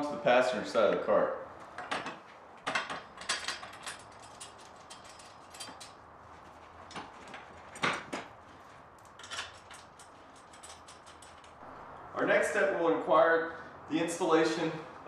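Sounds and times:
light metal clicks and knocks: 0:01.7 - 0:11.6.

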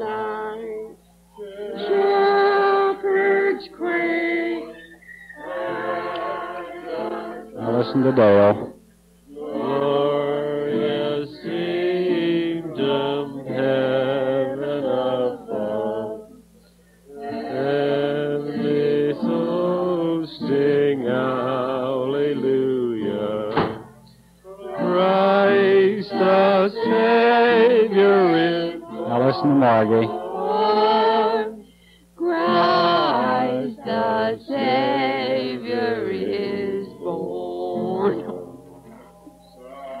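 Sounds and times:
woman singing: 0:00.0 - 0:01.0, 0:01.6 - 0:07.6, 0:24.6 - 0:39.5
singer breathing: 0:16.5 - 0:17.1, 0:24.1 - 0:24.5, 0:31.6 - 0:32.2.

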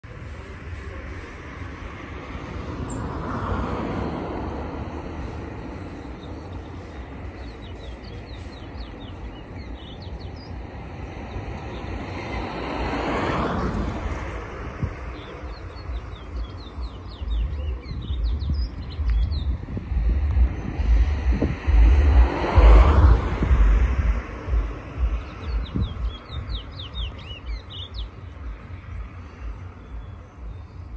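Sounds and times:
vehicles passing: 0:00.0 - 0:30.9
wind rumble on microphone: 0:00.0 - 0:30.9
finches chirping: 0:25.0 - 0:28.5.

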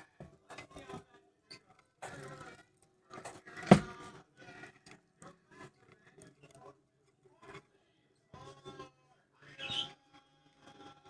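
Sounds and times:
loud thump: 0:03.7 - 0:03.9.

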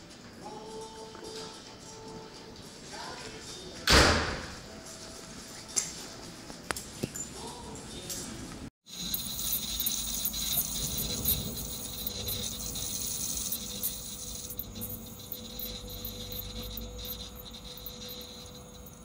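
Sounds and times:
light ticks and rattles: 0:08.9 - 0:19.0.

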